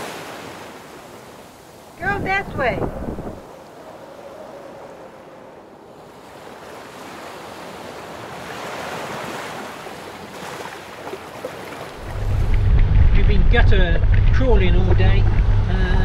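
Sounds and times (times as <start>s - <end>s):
water rushing along a hull: 0.0s - 16.0s
wind on the microphone: 2.0s - 3.6s, 12.0s - 16.0s.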